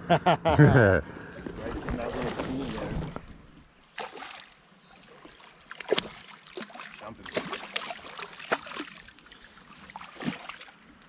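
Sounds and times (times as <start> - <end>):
fish splashing in water: 3.9 - 10.9.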